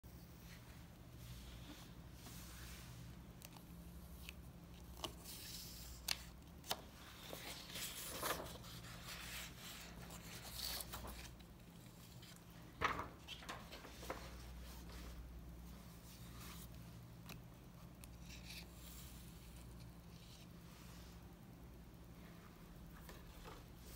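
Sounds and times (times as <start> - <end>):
low steady hum: 0.0 - 23.9
paper rustling: 4.2 - 15.2.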